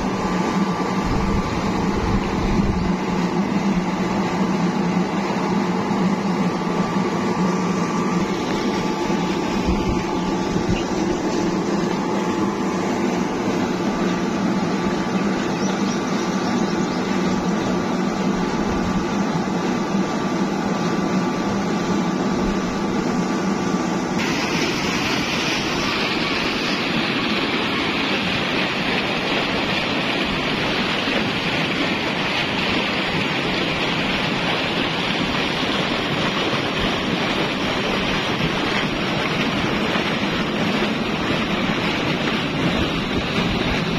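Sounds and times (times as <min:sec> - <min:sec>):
electric motor and pump humming: 0:00.0 - 0:43.9
water gushing from pipes: 0:00.0 - 0:43.9.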